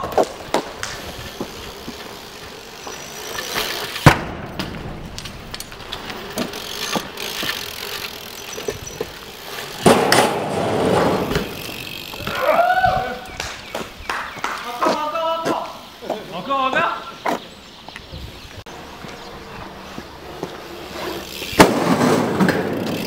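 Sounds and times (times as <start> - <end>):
bike tyres rolling on concrete: 0.0 - 23.0
rough scraping on concrete: 5.3 - 12.3, 18.7 - 23.0.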